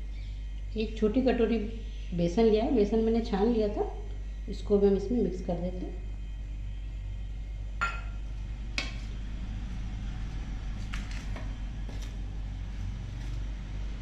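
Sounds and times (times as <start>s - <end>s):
steady low hum: 0.0s - 14.0s
spoon clinking against bowl: 7.8s - 8.2s.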